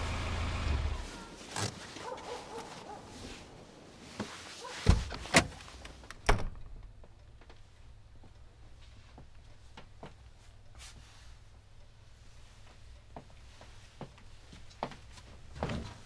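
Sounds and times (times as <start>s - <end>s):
low steady engine rumble: 0.0s - 1.4s.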